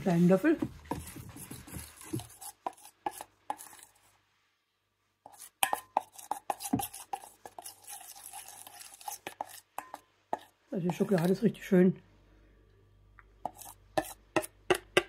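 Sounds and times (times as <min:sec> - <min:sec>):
spoon scraping steel bowl: 0:00.0 - 0:04.1, 0:05.2 - 0:11.5, 0:13.4 - 0:14.8.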